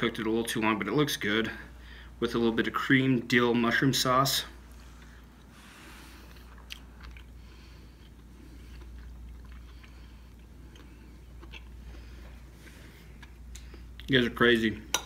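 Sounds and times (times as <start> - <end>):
man chewing food: 4.7 - 14.1.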